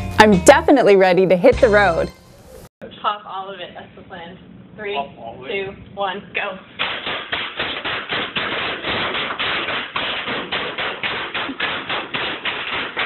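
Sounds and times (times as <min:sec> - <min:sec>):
bubble wrap popping: 0:06.8 - 0:13.0
stomping feet: 0:06.8 - 0:13.0.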